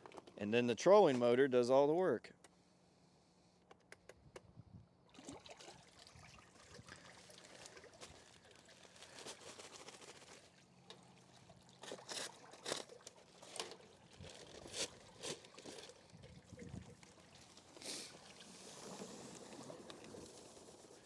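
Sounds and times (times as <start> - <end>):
water churning in a barrel: 5.0 - 21.0
paper sack rustling: 7.1 - 10.8, 11.8 - 21.0.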